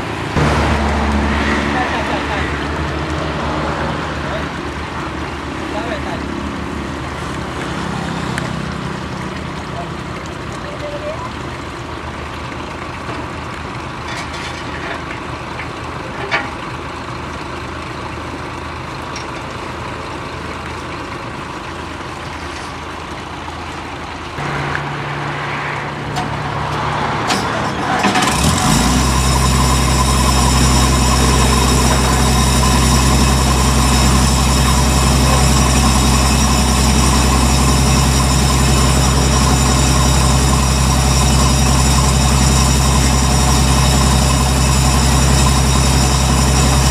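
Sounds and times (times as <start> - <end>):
high whine: 0.0 - 7.6, 24.4 - 46.9
diesel engine starting: 0.0 - 46.9
low engine hum: 0.0 - 46.9.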